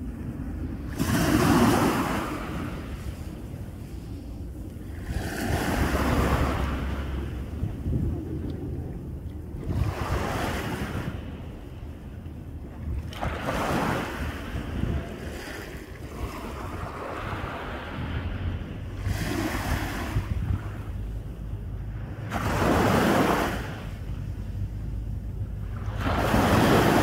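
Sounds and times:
small waves breaking on sand: 0:00.0 - 0:04.2, 0:04.8 - 0:08.2, 0:09.5 - 0:11.5, 0:13.0 - 0:20.9, 0:22.2 - 0:24.3, 0:25.6 - 0:27.0
wind rumble on microphone: 0:00.0 - 0:27.0.

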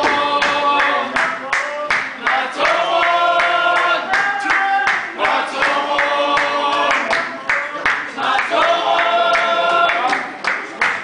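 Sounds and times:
women singing unaccompanied: 0:00.0 - 0:01.3
hand clapping: 0:00.0 - 0:11.0.

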